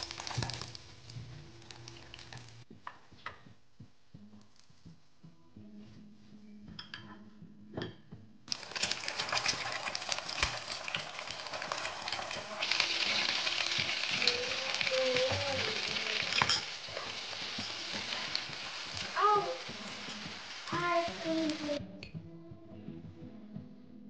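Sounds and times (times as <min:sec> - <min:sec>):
frying sizzle and crackle: 0:00.0 - 0:02.7, 0:08.5 - 0:21.8.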